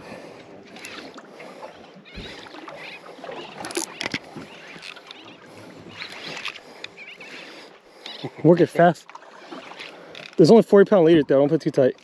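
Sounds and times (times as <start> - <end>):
fishing reel being cranked: 9.8 - 10.5.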